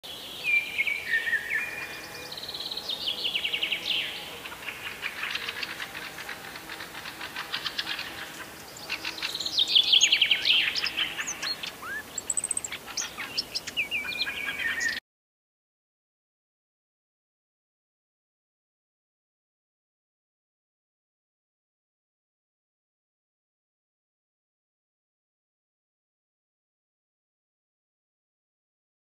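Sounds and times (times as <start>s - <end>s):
songbirds singing and calling: 0.1s - 15.0s.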